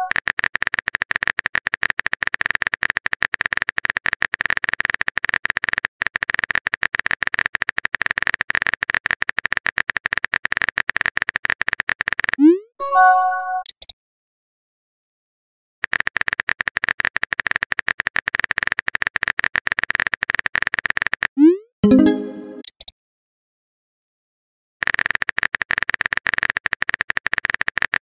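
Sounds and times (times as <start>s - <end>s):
message notification chime: 12.8s - 13.6s, 21.8s - 22.6s
keyboard typing clicks: 15.8s - 22.9s.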